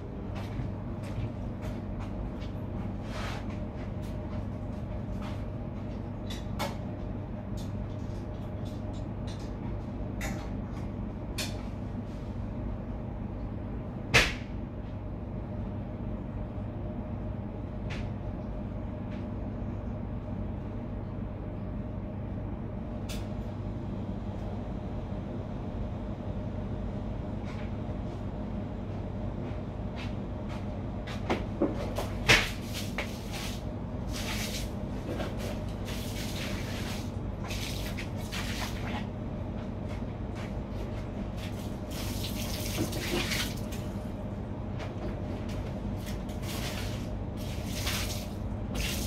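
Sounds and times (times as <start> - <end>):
kitchen machinery humming: 0.0 - 9.4, 31.0 - 49.0.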